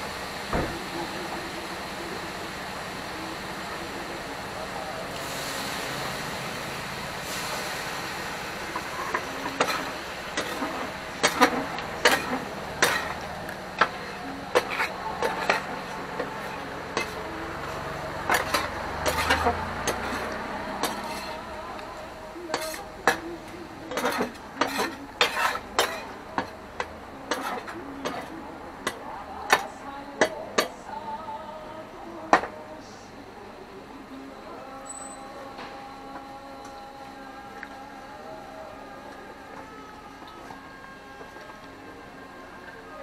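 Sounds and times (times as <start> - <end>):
skewers sizzling on griddle: 0.0 - 29.7
metal tongs clacking and scraping: 8.8 - 21.5, 22.5 - 23.3, 23.9 - 30.7.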